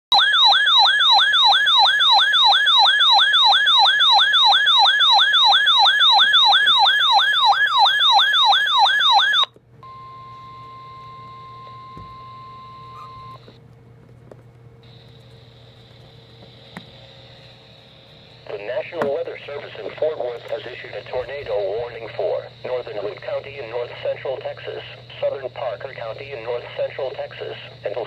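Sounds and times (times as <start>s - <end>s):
warbling alert siren: 0.1s - 13.6s
radio hiss: 15.8s - 28.0s.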